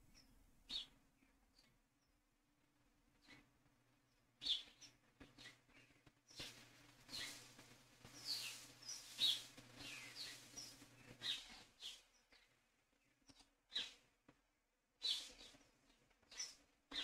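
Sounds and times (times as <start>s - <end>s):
faint bird chirps: 4.1s - 14.1s, 15.0s - 17.0s.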